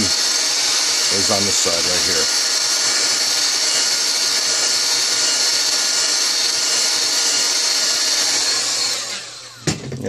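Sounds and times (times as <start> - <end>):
heat gun fan blowing: 0.0 - 9.7.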